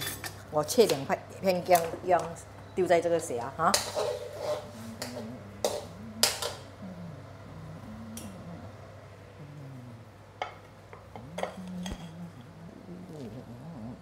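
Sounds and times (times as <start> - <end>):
dishes clinking against steel pot: 3.6 - 6.6.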